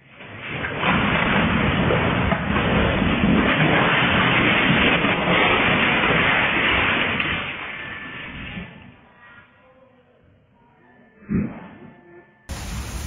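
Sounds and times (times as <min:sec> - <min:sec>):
building rumbling and rattling: 0:00.0 - 0:09.0.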